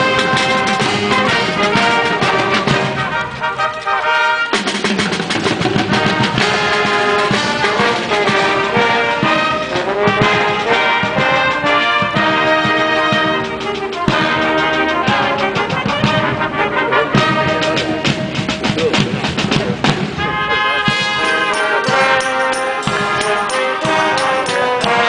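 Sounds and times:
brass band playing: 0.0 - 25.0
sharp percussive hits: 20.9 - 25.0.

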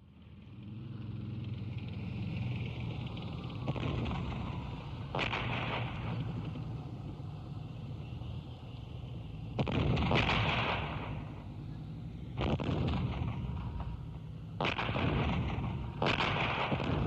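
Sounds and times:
artillery blasts: 3.6 - 7.1, 9.5 - 17.0.

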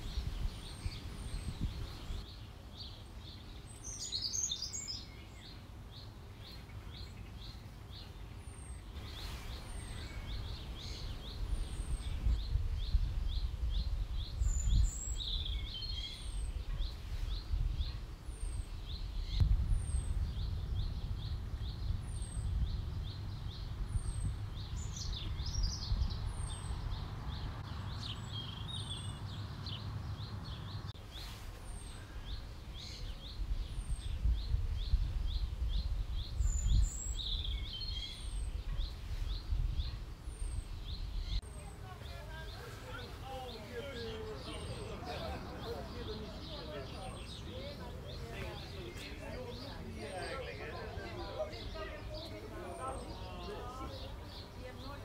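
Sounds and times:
bird song phrases: 0.0 - 55.0
low microphone rumble: 9.0 - 30.9.

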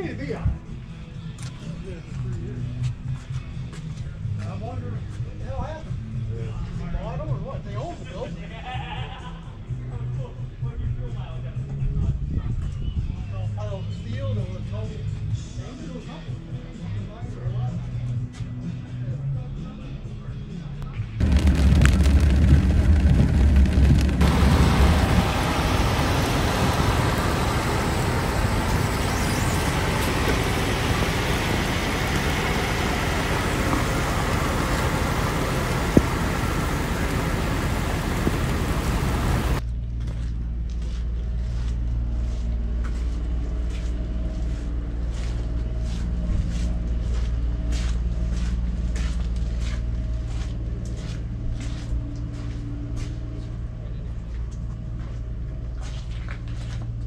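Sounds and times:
diesel truck engine: 21.2 - 39.6
heavy rain: 21.2 - 39.6.

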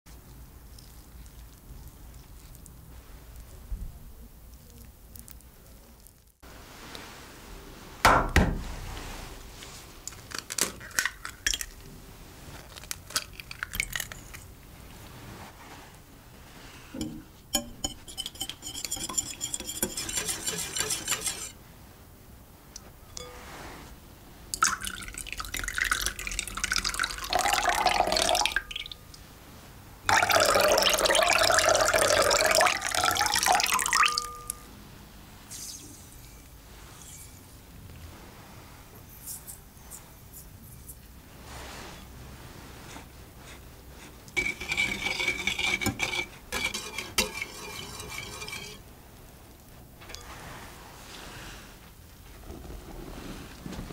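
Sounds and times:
whisk clinking against glass: 17.0 - 21.5, 30.1 - 34.7, 44.4 - 48.8
liquid pouring into a bowl: 24.6 - 29.0, 30.1 - 34.6.

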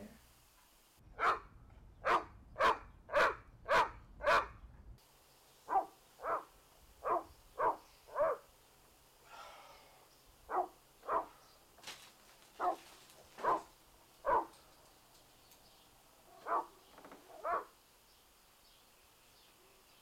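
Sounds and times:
dog barking: 1.2 - 4.6, 5.7 - 8.5, 10.5 - 11.4, 12.6 - 14.6, 16.3 - 17.7.

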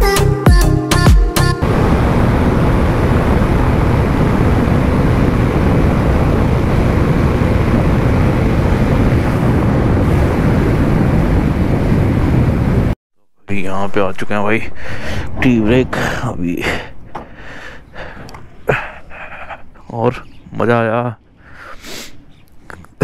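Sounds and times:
wind rushing over microphone: 1.6 - 19.7.

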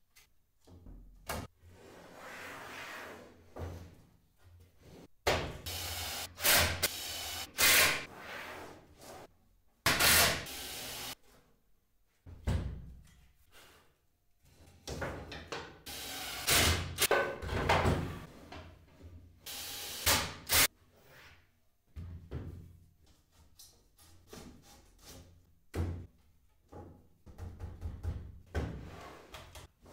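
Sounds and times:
cordless drill driving screws: 10.0 - 11.1.

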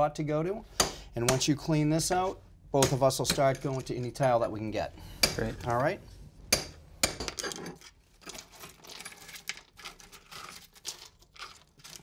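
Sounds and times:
tile shards clinking and scraping: 7.2 - 12.0.

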